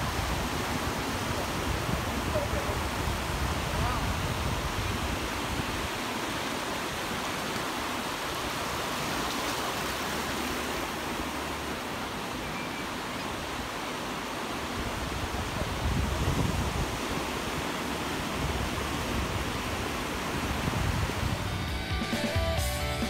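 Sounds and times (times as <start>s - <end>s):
ocean surf breaking: 0.0s - 22.4s.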